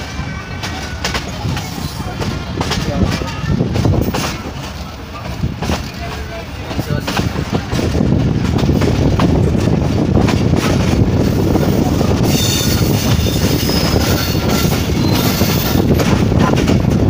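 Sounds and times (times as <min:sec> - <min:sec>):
train wheels rumbling on rails: 0:00.0 - 0:17.0
high-pitched wheel squeal: 0:12.2 - 0:15.9.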